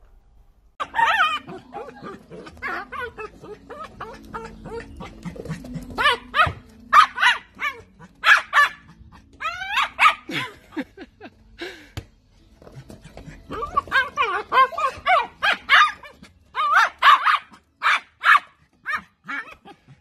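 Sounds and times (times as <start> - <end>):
dog barking excitedly: 0.8 - 10.3, 13.5 - 19.9.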